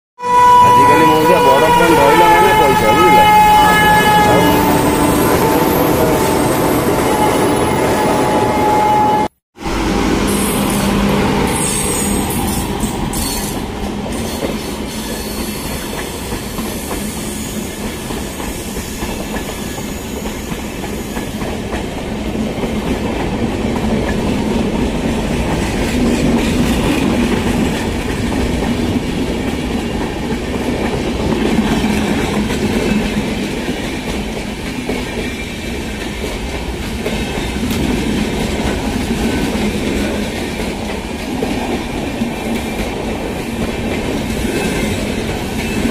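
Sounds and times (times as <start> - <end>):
train wheels rumbling on rails: 0.6 - 45.9
clickety-clack over rail joints: 12.7 - 45.9.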